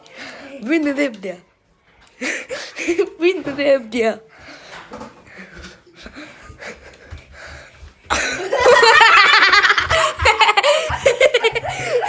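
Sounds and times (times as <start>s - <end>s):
people laughing: 5.5s - 7.3s, 8.0s - 12.0s.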